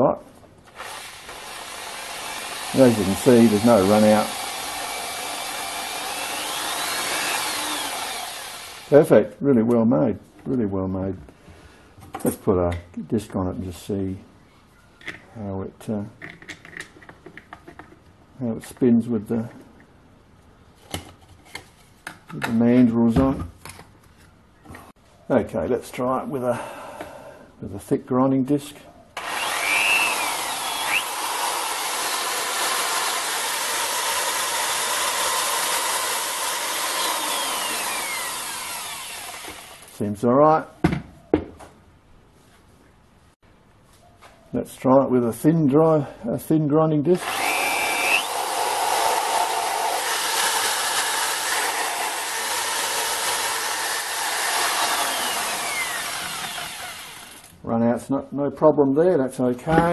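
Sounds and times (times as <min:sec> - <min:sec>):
electric drill whining: 0:00.7 - 0:08.9, 0:29.2 - 0:39.9, 0:47.2 - 0:57.5.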